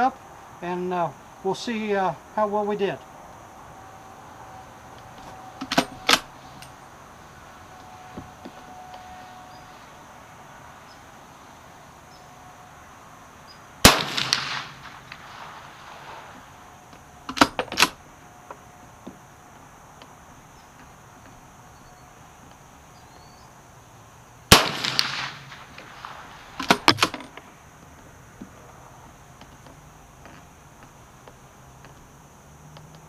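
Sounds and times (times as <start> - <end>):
rifle shot: 13.8 - 16.0, 24.5 - 27.2.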